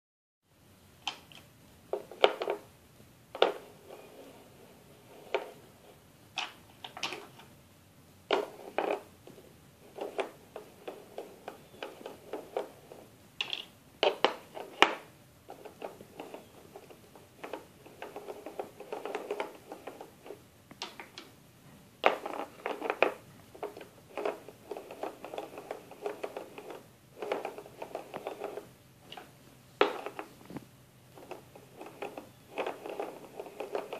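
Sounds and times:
toy pieces clicking on peg board: 8.3s - 9.1s, 9.8s - 21.3s, 22.0s - 28.7s, 29.8s - 30.3s, 31.2s - 33.9s.

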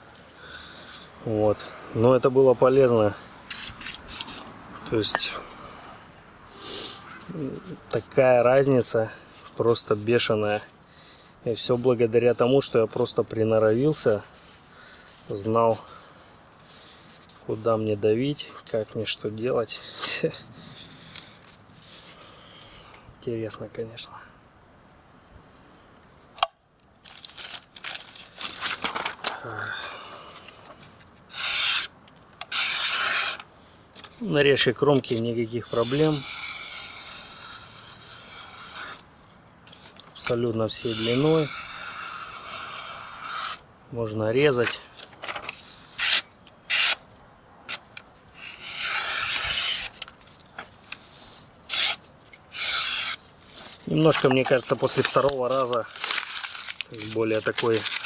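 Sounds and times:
paper rustling and crinkling: 27.0s - 29.7s, 44.5s - 46.2s, 48.4s - 51.1s, 52.6s - 58.0s
knife slicing through paper: 31.3s - 31.9s, 32.5s - 33.4s, 34.9s - 39.0s, 39.8s - 43.6s, 45.4s - 47.0s, 48.4s - 50.1s, 51.7s - 58.0s.

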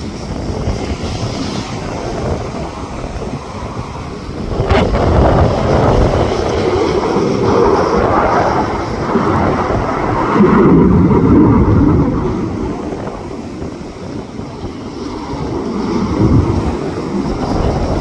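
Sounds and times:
jet fighter flying past: 0.0s - 18.0s.

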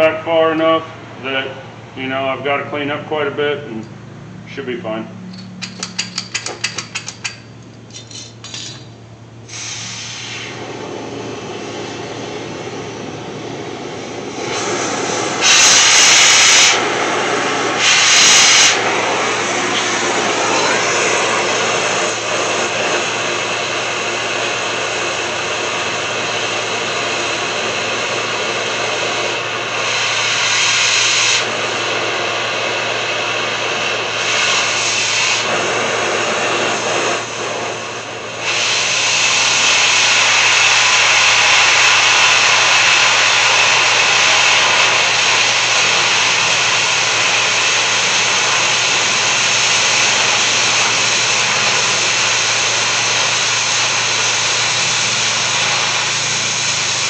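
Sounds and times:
cutting torch hissing: 9.4s - 57.0s.

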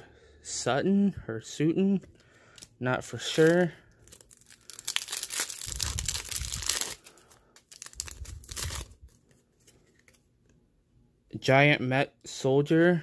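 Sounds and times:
foil wrapper tearing and crinkling: 3.2s - 9.2s.

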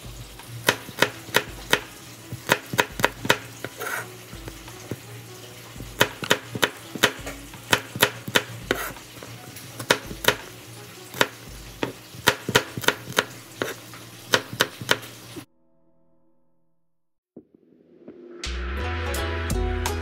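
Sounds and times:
kitchen utensils clicking: 6.0s - 10.5s.

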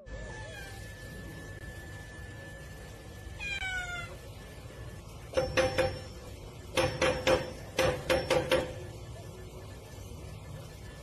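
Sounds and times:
cat meowing: 0.1s - 1.0s, 3.4s - 4.2s.

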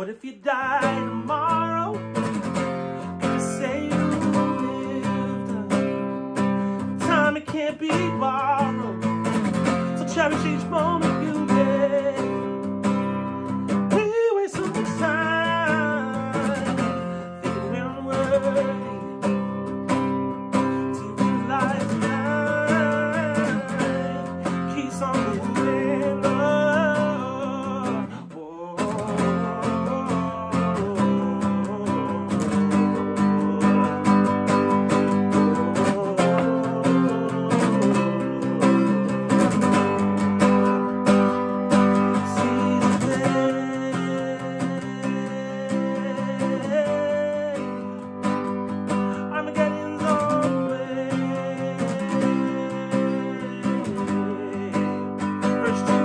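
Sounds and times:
acoustic guitar: 0.0s - 56.0s
man singing: 0.0s - 56.0s.

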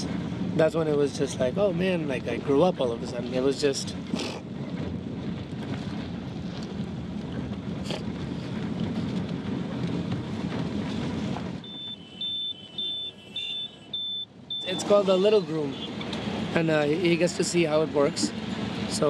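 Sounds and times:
road and engine rumble in car: 0.0s - 19.0s.

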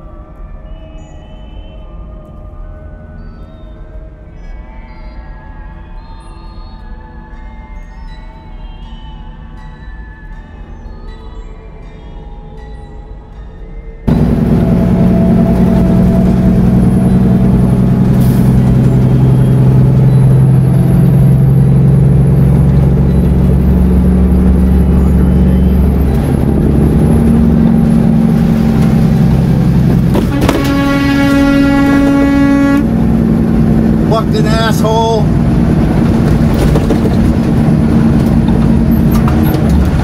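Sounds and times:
car horn: 14.1s - 19.6s, 27.2s - 35.3s
car driving at highway speed: 14.1s - 40.0s.

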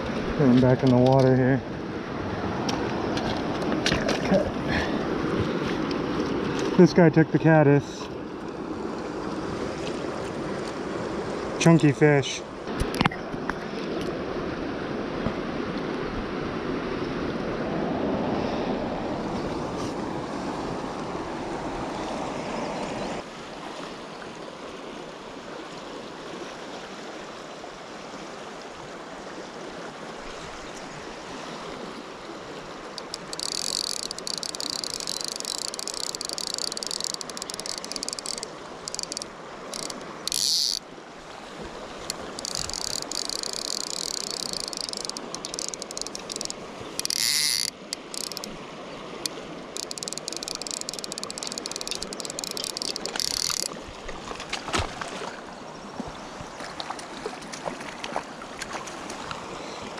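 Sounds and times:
rushing river: 0.0s - 59.9s
water sloshing: 32.6s - 59.9s
fishing reel clicking buzz: 33.0s - 40.8s, 42.1s - 48.6s, 49.2s - 53.8s.

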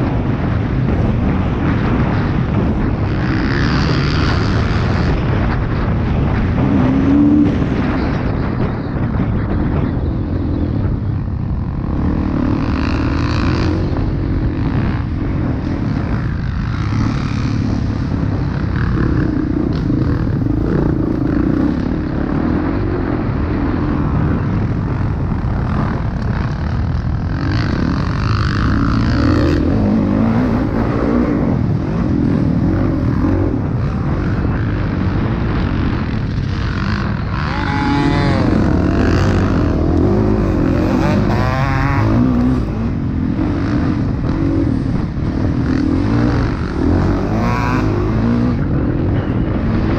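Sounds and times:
motocross bike engine revving: 0.0s - 49.9s.

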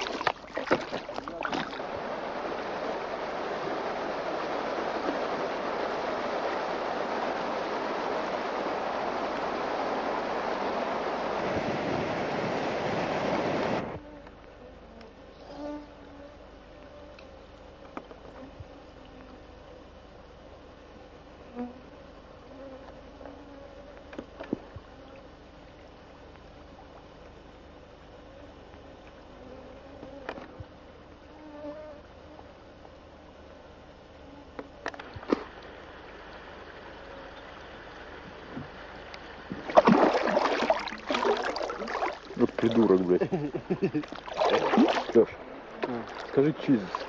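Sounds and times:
creek running over stones: 0.0s - 11.6s, 35.1s - 47.0s
insects buzzing: 0.0s - 47.0s
low steady hiss: 0.0s - 47.0s.

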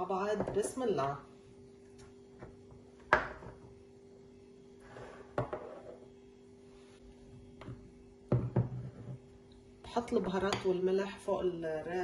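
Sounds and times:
faint steady hum: 0.0s - 12.0s
bowl knocking on countertop: 8.3s - 9.1s.

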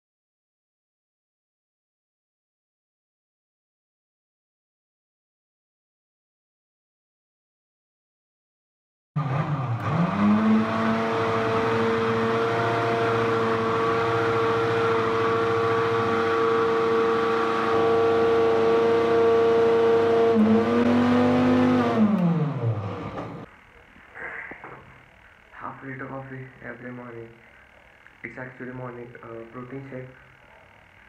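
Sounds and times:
blender motor whining: 9.2s - 23.5s.

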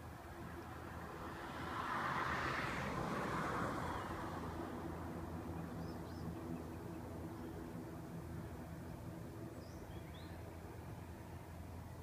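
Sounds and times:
vehicle passing: 0.4s - 8.9s.

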